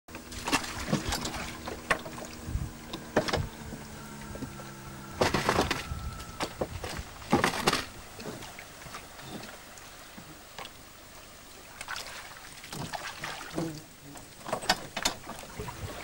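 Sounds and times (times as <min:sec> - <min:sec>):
gear knocking in boat: 0:00.1 - 0:09.6
faint steady hum: 0:00.1 - 0:16.0.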